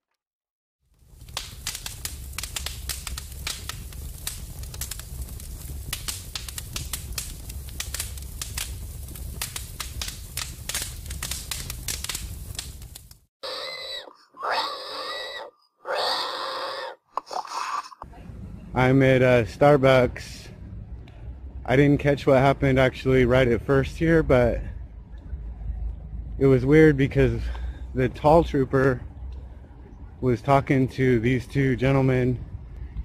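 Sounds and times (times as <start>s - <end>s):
fire crackling: 0.8s - 13.8s
pig squealing: 13.4s - 18.0s.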